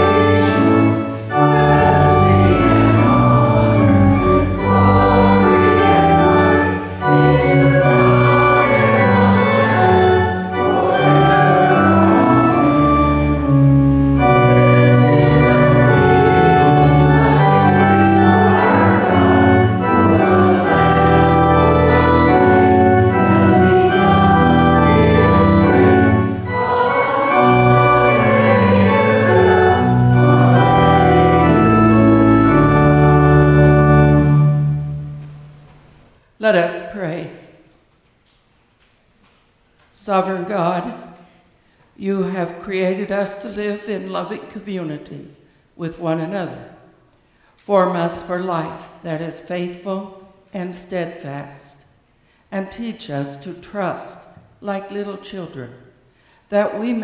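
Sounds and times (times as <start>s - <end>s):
church organ chords: 0.0s - 36.0s.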